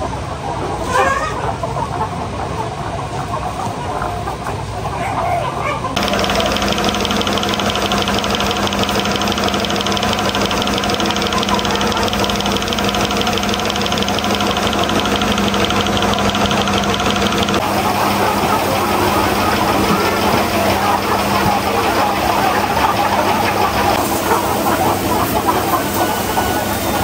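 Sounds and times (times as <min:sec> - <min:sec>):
fast high rattle: 0:06.0 - 0:17.9
motor running steadily: 0:06.0 - 0:24.0.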